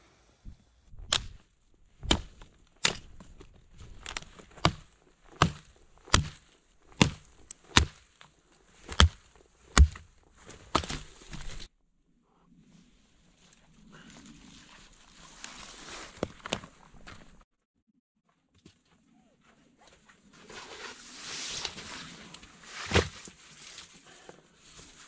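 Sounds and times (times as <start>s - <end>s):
dry branches cracking underfoot: 0.9s - 11.7s.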